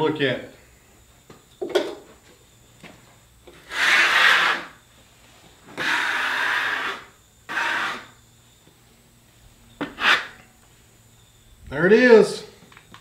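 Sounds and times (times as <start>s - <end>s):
hand scraper scraping wood: 3.5s - 4.8s, 5.7s - 8.2s, 9.8s - 10.5s.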